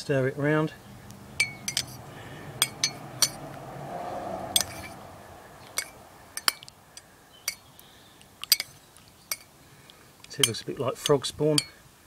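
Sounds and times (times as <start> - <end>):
teaspoon clinking in ceramic mug: 1.4 - 2.0.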